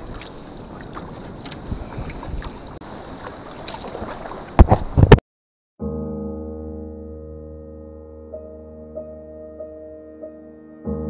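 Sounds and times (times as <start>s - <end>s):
wind on microphone: 0.0s - 2.8s, 4.6s - 5.2s
kayak paddle splashing water: 0.0s - 5.1s.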